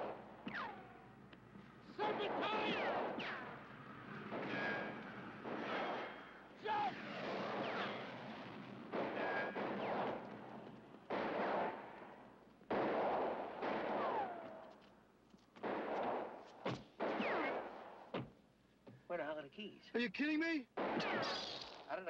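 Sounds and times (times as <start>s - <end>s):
bullet ricochet whines: 0.0s - 1.0s, 2.2s - 3.6s, 4.3s - 10.3s, 12.7s - 14.7s, 15.6s - 17.7s, 20.8s - 21.9s
gunshots: 0.0s - 1.1s, 2.0s - 14.8s, 15.6s - 18.2s, 20.7s - 22.0s.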